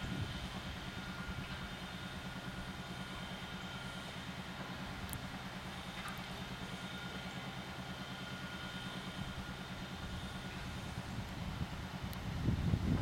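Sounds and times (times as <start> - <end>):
pumpjack motor running: 0.0 - 13.0.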